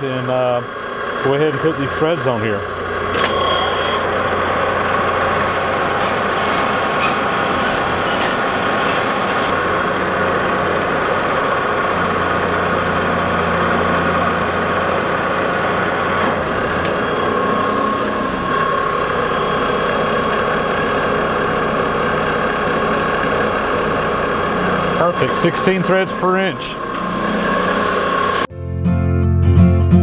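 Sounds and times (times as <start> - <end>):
low hum: 0.0 - 28.5
metal lathe running: 0.0 - 28.5.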